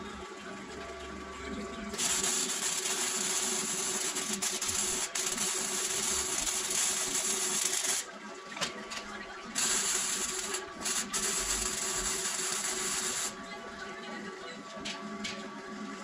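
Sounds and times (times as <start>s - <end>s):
welding arc crackling hiss: 2.0s - 8.1s, 9.6s - 13.4s.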